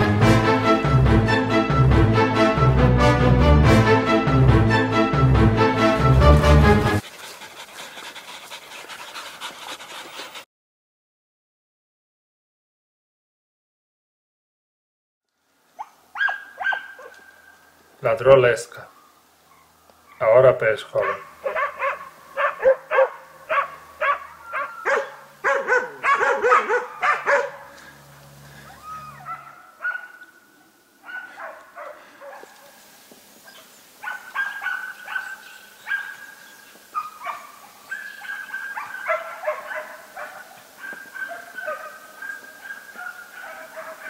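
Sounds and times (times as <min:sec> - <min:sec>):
dog barking rapidly: 0:15.8 - 0:17.1, 0:21.0 - 0:27.7, 0:29.2 - 0:30.2, 0:31.1 - 0:32.4, 0:34.0 - 0:36.4, 0:37.0 - 0:44.0
dog yelping: 0:15.8 - 0:17.4, 0:21.0 - 0:27.7, 0:28.7 - 0:30.3, 0:33.5 - 0:36.4, 0:37.0 - 0:44.0.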